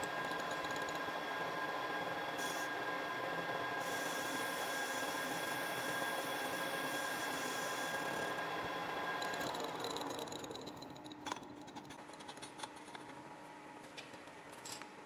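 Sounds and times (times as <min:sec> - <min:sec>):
metal lathe running: 0:02.4 - 0:11.1.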